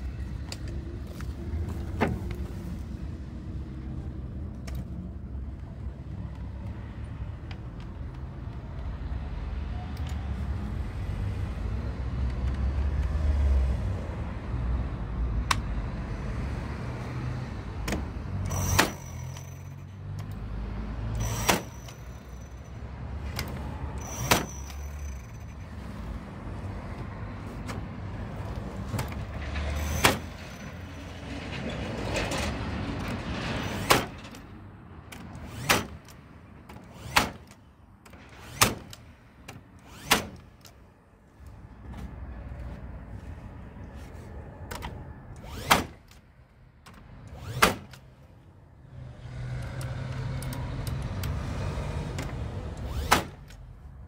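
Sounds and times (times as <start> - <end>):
nail gun firing: 18.5 - 19.5, 21.2 - 22.1, 24.0 - 25.1, 33.7 - 34.2, 35.4 - 36.2, 36.8 - 37.6, 38.3 - 39.0, 39.8 - 40.6, 45.4 - 46.2, 47.3 - 48.0, 52.8 - 53.6.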